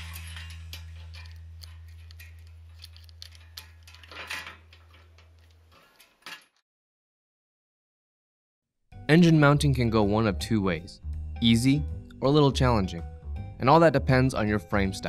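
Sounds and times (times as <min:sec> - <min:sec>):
chain jangle: 0:00.0 - 0:06.4
bicycle chain clicking and rattling: 0:00.0 - 0:06.6.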